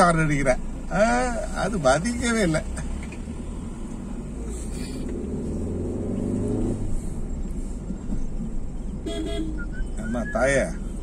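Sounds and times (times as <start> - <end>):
road and engine rumble in car: 0.0 - 11.0.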